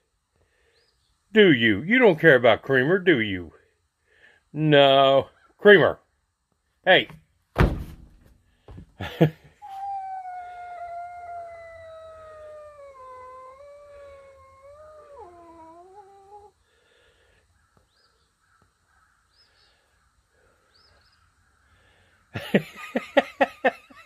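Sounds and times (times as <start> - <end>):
cat growling yowl: 9.6 - 16.5
sharp animal cries: 9.6 - 16.5.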